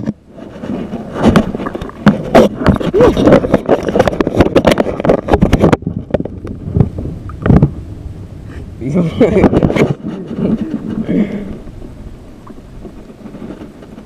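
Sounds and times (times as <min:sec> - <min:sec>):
water sloshing and splashing: 0:00.0 - 0:07.7.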